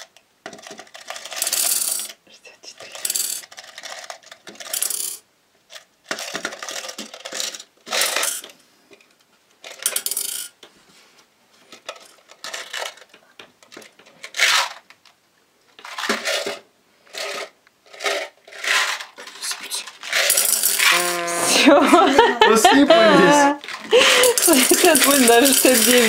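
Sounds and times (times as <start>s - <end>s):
mints rattling in metal saucepan: 20.0s - 21.0s, 23.9s - 26.0s.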